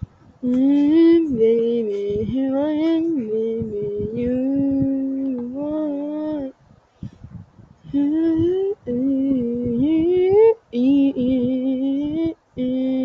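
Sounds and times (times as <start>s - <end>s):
person singing wordless tune: 0.4s - 6.5s, 7.9s - 13.0s.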